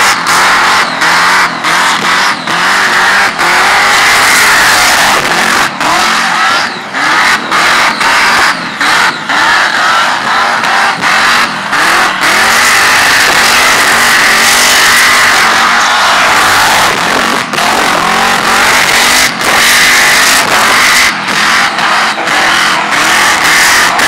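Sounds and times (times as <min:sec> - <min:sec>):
car engine revving hard: 0:00.0 - 0:24.0
tyres screeching: 0:00.2 - 0:24.0.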